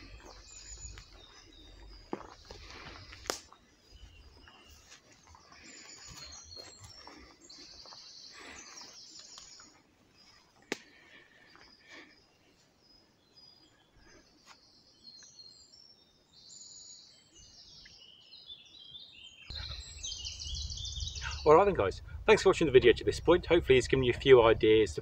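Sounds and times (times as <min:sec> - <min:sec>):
footsteps on forest floor: 0:00.0 - 0:12.7
birds chirping and trilling: 0:00.0 - 0:25.0.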